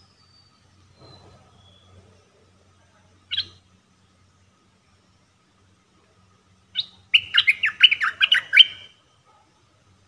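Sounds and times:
harsh chattering bird notes: 3.3 - 3.7, 6.7 - 9.0.

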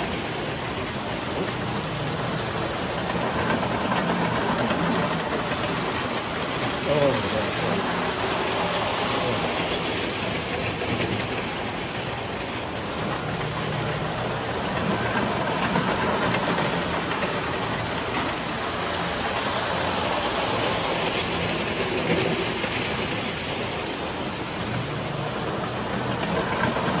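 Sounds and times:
toy train rumbling on metal track: 0.0 - 27.0.

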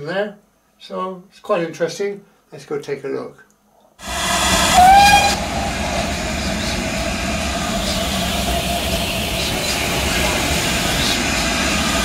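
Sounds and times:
low engine rumble: 4.0 - 12.0
steam hissing: 4.0 - 12.0
steam locomotive whistle: 4.0 - 12.0.

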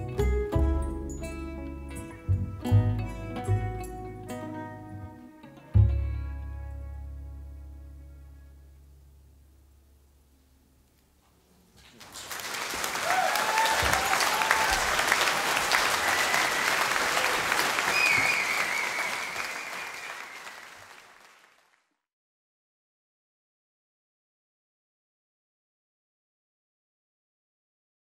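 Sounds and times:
audience applauding: 11.9 - 21.8
cheers and whistles: 12.9 - 21.0.

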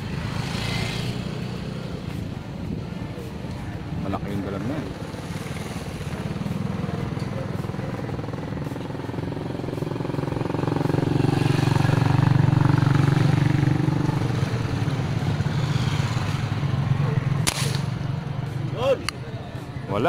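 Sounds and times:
motor vehicle engine running: 0.0 - 19.9
spear gun snap: 17.4 - 18.0.

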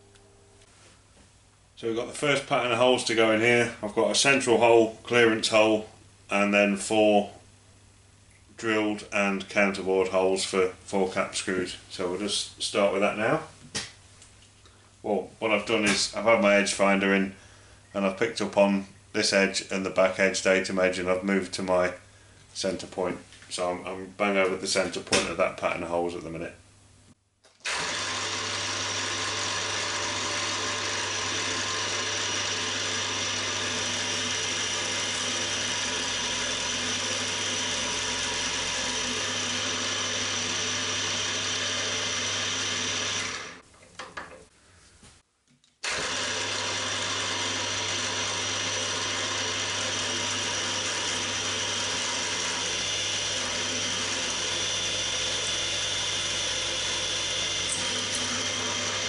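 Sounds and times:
drill cutting into aluminium: 27.6 - 43.6, 45.8 - 59.0
drill press spindle running: 27.6 - 43.6, 45.8 - 59.0.

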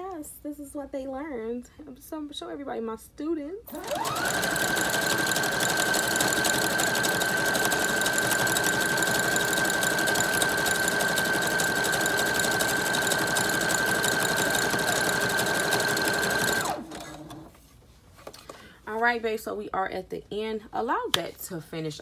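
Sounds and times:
sewing machine running: 3.7 - 17.5.

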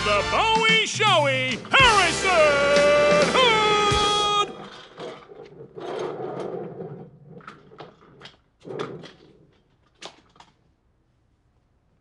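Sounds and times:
chair scraping: 2.9 - 10.4.

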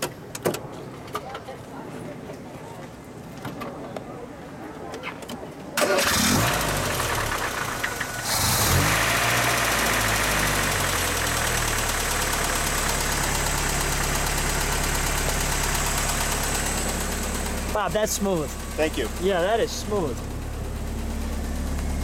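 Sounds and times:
car engine starting and idling: 5.8 - 22.0.

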